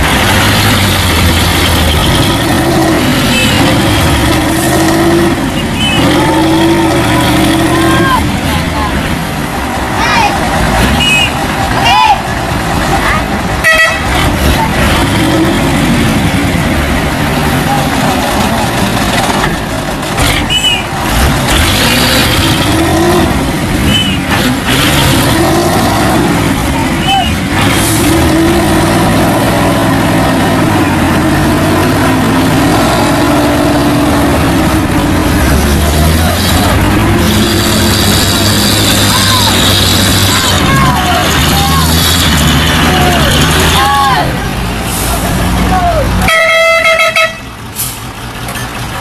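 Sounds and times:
diesel truck engines under load: 0.0s - 49.0s.

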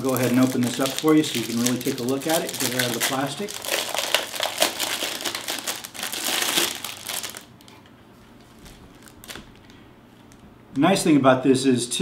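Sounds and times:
plastic bag crinkling: 0.0s - 10.4s.

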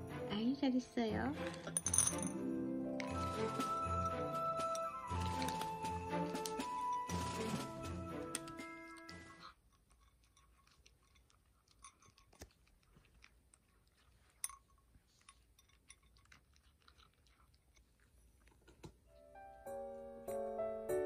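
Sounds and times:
cat crunching dry kibble: 1.4s - 1.9s, 4.9s - 18.8s.

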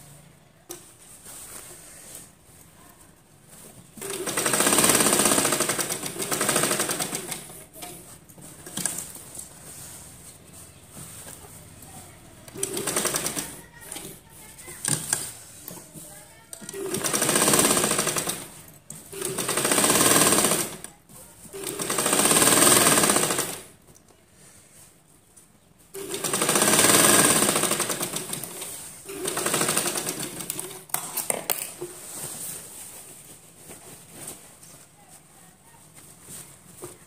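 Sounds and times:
sewing machine stitching: 4.0s - 7.7s, 12.5s - 14.2s, 16.5s - 20.9s, 21.5s - 23.7s, 25.9s - 30.9s.

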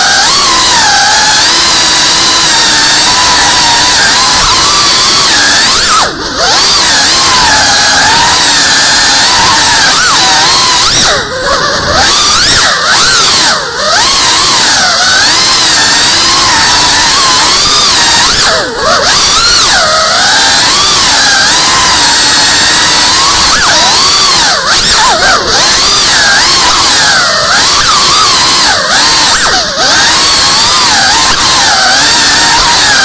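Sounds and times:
drone motors whining: 0.0s - 33.0s.

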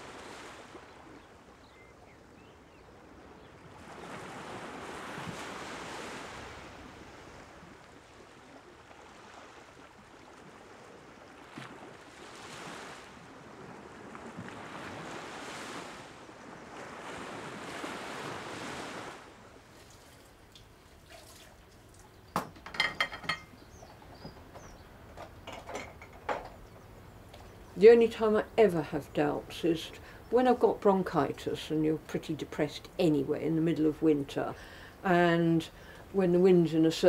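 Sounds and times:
sea waves breaking on shore: 0.0s - 22.3s
crockery clinking in sink: 22.4s - 23.6s, 25.4s - 26.6s.

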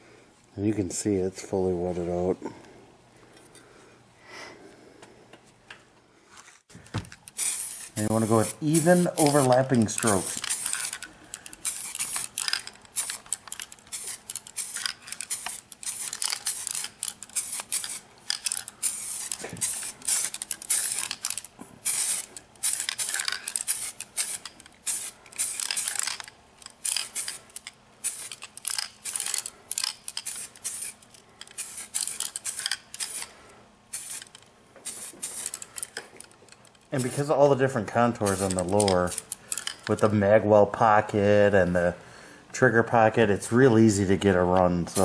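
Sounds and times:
aerosol spray can hissing: 7.3s - 11.0s, 11.6s - 13.2s, 13.9s - 26.2s, 26.8s - 29.3s, 30.2s - 33.3s, 33.9s - 35.7s.

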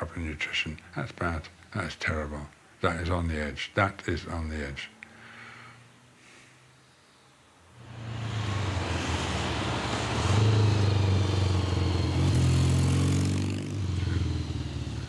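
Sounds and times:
motorcycle engine approaching: 7.8s - 15.0s.

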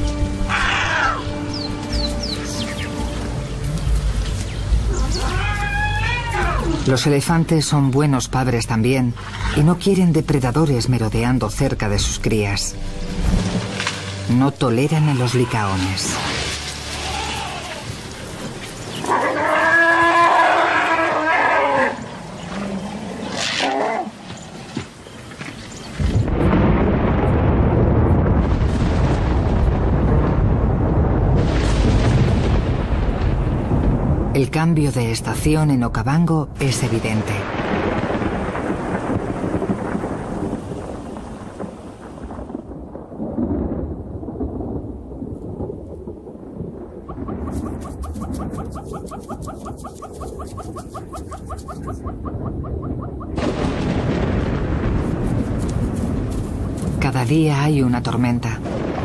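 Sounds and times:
elephant trumpeting: 0.5s - 1.4s, 4.9s - 6.9s, 15.1s - 18.0s, 18.9s - 24.2s
thunder rumbling: 25.8s - 59.0s.

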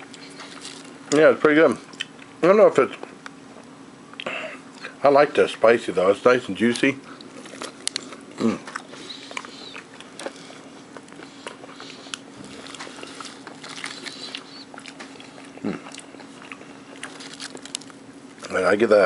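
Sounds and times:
person chewing crunchy food: 0.0s - 1.2s, 1.8s - 2.4s, 6.7s - 18.6s
steady low hum: 0.0s - 19.0s
low vocal sounds: 8.4s - 8.7s, 15.6s - 15.9s.

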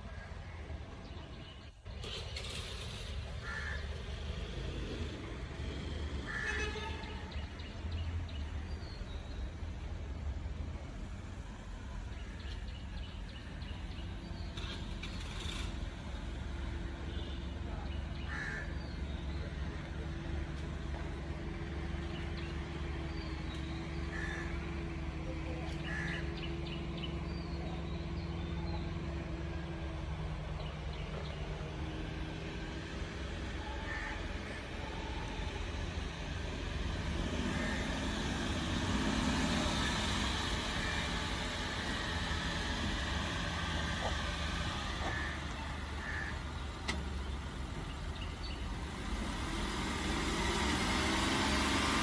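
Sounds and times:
car engine running slowly: 37.5s - 52.0s.

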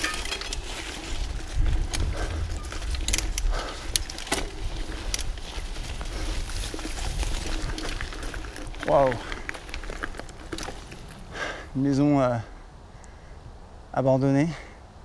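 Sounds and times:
bike clicks and rattles: 0.0s - 11.6s
bike rolling rumble: 0.0s - 12.6s.

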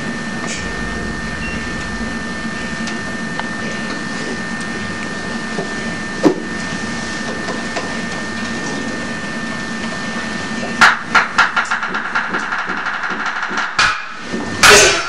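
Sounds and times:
steady hiss: 0.5s - 4.6s.

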